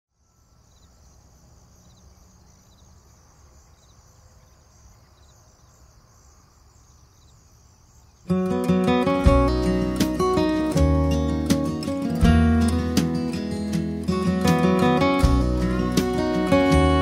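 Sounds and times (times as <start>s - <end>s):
insects trilling: 0.2s - 9.2s.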